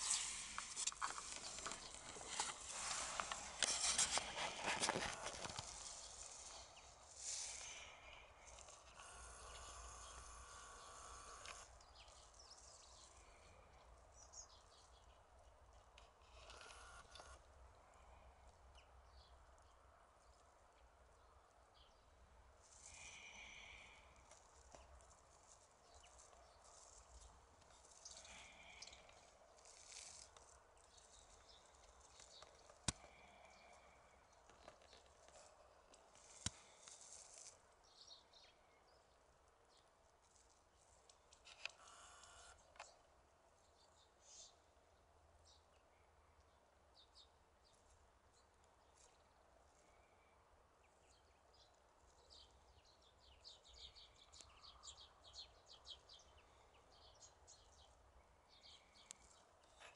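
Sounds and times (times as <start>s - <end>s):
faint steady whine: 0.0s - 44.8s
faint outdoor ambience: 0.0s - 59.9s
small birds chirping: 0.0s - 59.9s.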